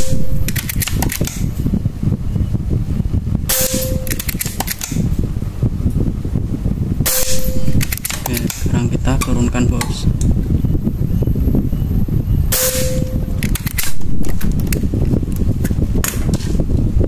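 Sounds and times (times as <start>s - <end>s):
air rifle shots: 0.0s - 1.5s, 3.5s - 5.1s, 7.0s - 8.8s, 12.5s - 14.5s.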